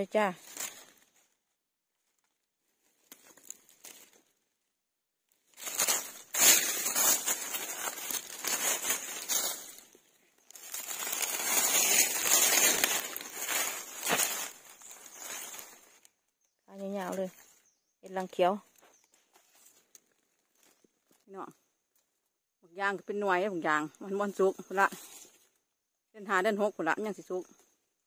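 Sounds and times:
dry leaves crunching: 0.3 - 1.4, 2.0 - 4.4, 5.4 - 16.1, 16.8 - 17.6.

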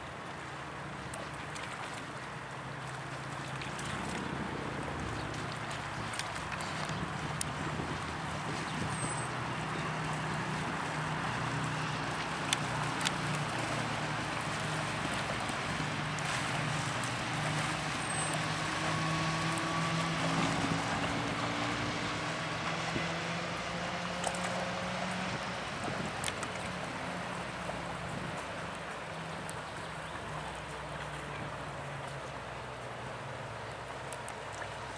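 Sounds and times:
boat diesel engine humming: 0.0 - 34.9
moving water: 0.0 - 34.9.

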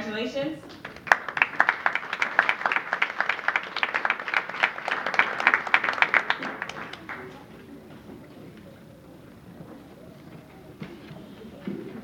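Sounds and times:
close hand claps: 0.7 - 7.5
audience applauding: 0.7 - 7.7.

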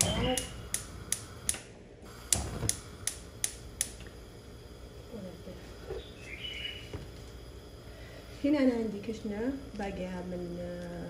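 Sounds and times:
gas stove igniter clicking: 0.0 - 4.3, 9.1 - 11.0.

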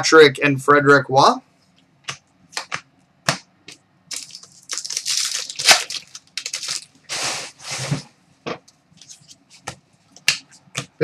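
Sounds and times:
wrapper crinkling and tearing: 4.1 - 7.3.

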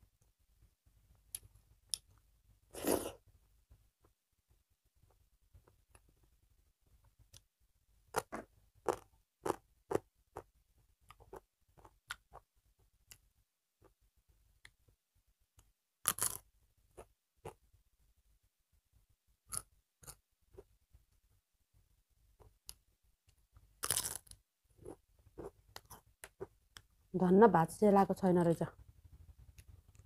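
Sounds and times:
person eating by hand: 8.1 - 12.5.

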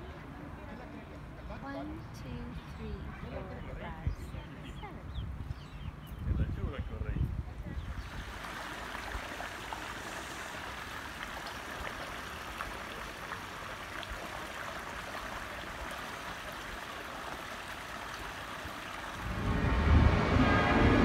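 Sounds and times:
flowing water: 7.8 - 21.0
loud low rumble: 19.2 - 21.0.

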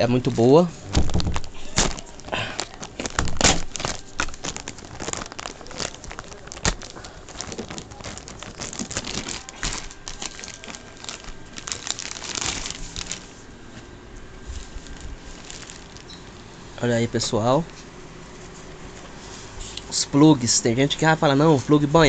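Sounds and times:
plastic packaging crinkling: 0.0 - 13.5, 14.4 - 17.4.

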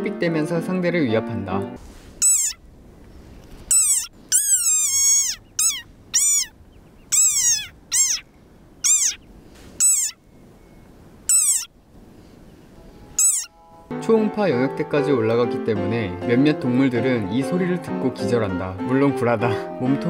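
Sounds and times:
frog squeaking: 2.2 - 2.6, 3.6 - 10.2, 11.2 - 11.8, 13.1 - 13.6.

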